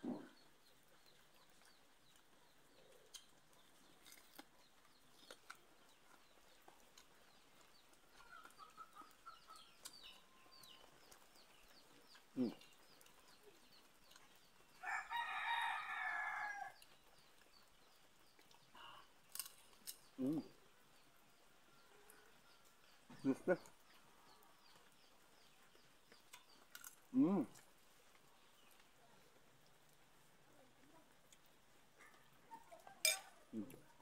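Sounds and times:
faint clicks and chirps: 0.0 - 15.2, 16.2 - 34.0
rooster crowing: 14.8 - 16.8.

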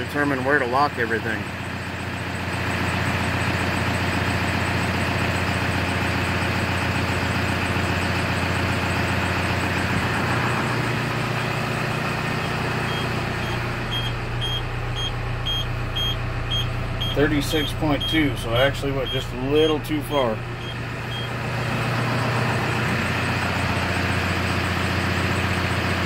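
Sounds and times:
diesel engine idling: 0.0 - 26.0
high warning beeper: 12.4 - 21.4.

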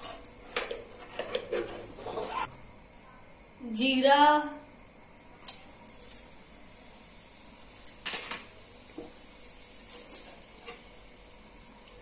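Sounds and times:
faint hiss of hot oil: 6.2 - 12.0.

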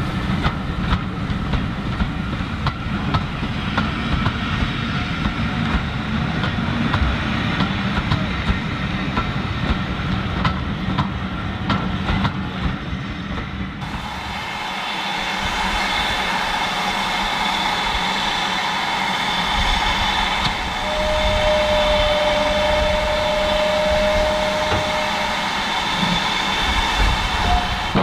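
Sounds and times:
steam locomotive hiss and rumble: 0.0 - 28.0
steady high tone: 20.7 - 28.0.

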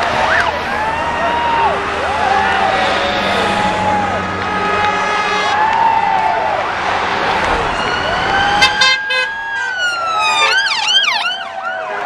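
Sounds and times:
police siren wailing: 0.0 - 12.0
short horn blasts: 2.5 - 5.7
fast siren yelp: 7.6 - 12.0.

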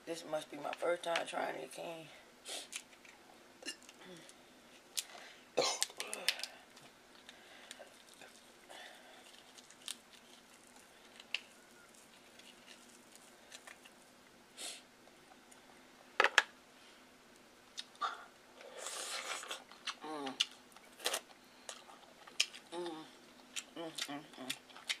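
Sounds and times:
crab shell crackling: 5.8 - 14.3.

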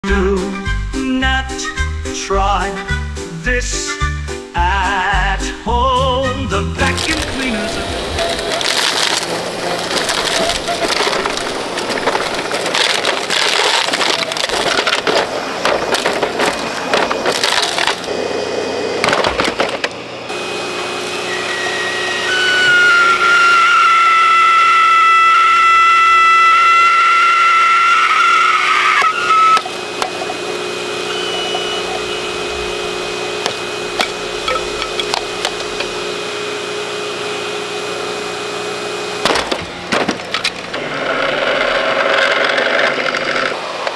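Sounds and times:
plastic cracking and splintering: 6.8 - 18.2, 19.0 - 20.0, 29.0 - 36.2, 39.2 - 43.9
motor high whine: 6.8 - 43.9
low steady hum: 29.3 - 40.8.

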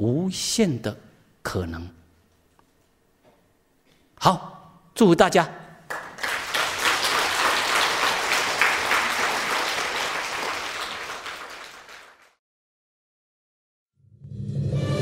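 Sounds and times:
many hands clapping: 5.9 - 12.4.

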